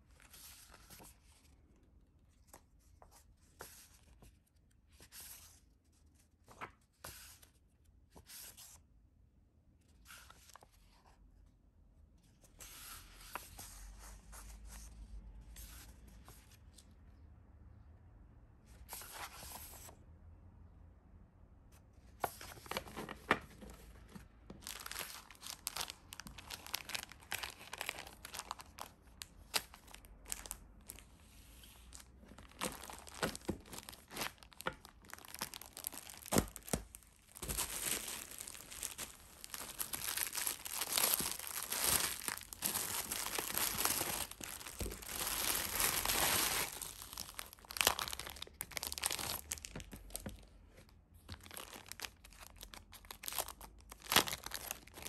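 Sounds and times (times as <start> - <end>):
paper crinkling and rustling: 22.2 - 55.0.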